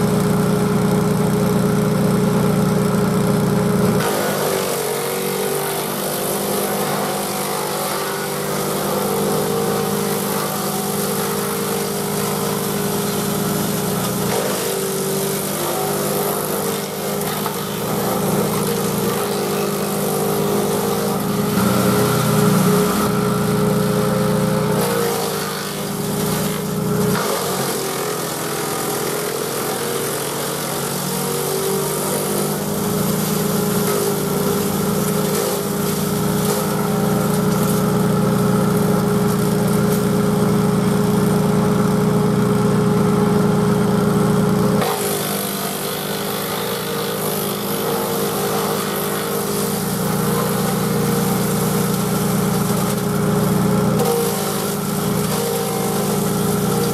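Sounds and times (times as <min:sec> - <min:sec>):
chipper shredding branches: 0:00.0 - 0:56.9
tractor engine running: 0:08.7 - 0:27.2, 0:31.9 - 0:44.8, 0:45.8 - 0:56.9.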